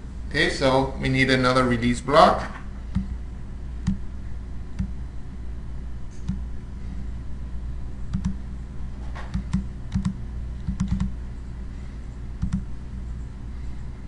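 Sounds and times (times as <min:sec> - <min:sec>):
steady low hum: 0:00.0 - 0:14.0
computer mouse and keyboard clicks: 0:06.1 - 0:06.4, 0:08.1 - 0:08.4, 0:09.2 - 0:11.1, 0:12.4 - 0:12.7.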